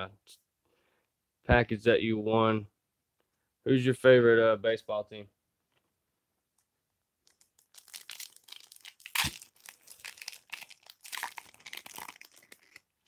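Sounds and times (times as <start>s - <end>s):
foil wrapper crinkling and tearing: 7.3s - 13.0s.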